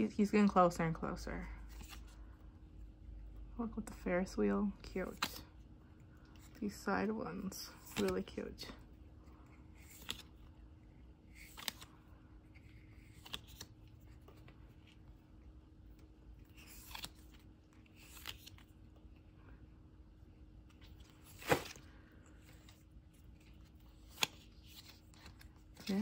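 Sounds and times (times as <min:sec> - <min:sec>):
photo cards flicking: 0:04.8 - 0:05.5, 0:07.4 - 0:08.7, 0:09.8 - 0:10.4, 0:11.3 - 0:12.0, 0:12.6 - 0:14.6, 0:16.5 - 0:18.8, 0:20.8 - 0:26.0.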